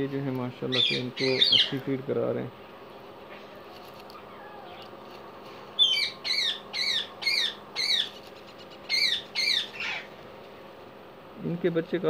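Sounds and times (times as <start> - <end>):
parakeet squawking: 0.7 - 1.9, 5.8 - 10.2.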